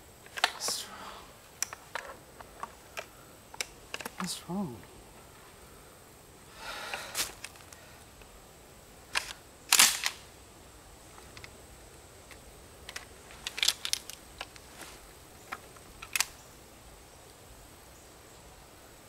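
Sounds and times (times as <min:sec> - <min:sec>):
shotgun action clicking and clacking: 0:09.1 - 0:10.2.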